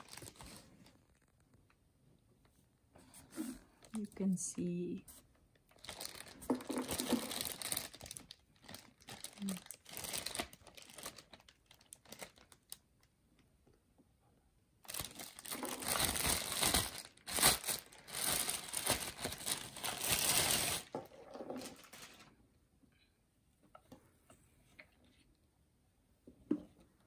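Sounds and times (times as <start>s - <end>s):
plastic bag crinkling: 0.0s - 1.4s, 5.6s - 12.8s, 14.8s - 22.4s.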